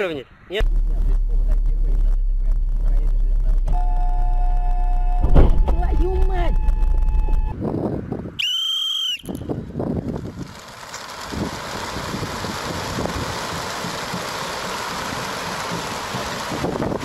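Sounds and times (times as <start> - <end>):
wind noise on microphone: 4.5 - 8.5, 9.2 - 10.6, 11.2 - 14.2, 16.1 - 17.0
high whistle-like tone: 8.4 - 9.5.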